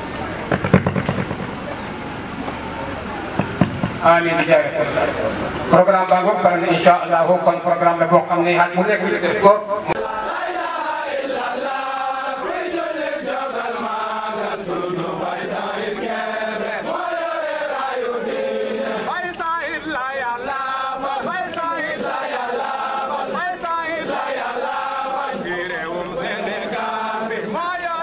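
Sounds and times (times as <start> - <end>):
group of voices chanting: 9.8 - 28.0.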